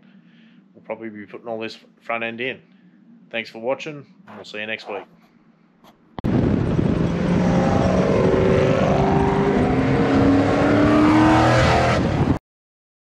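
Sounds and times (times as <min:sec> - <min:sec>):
car engine accelerating: 0:06.3 - 0:12.4.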